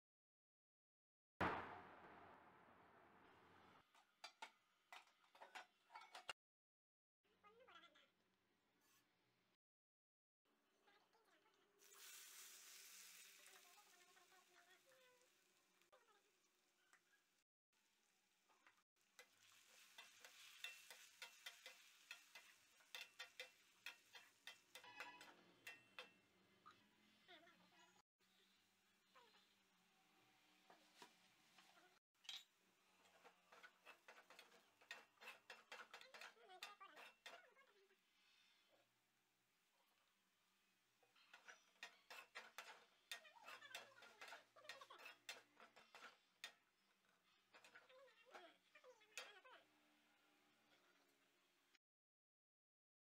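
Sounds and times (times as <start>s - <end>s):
potatoes sizzling in oil: 11.8s - 26.4s
spoon scraping steel pan: 19.2s - 26.2s, 30.7s - 37.6s, 41.1s - 49.4s.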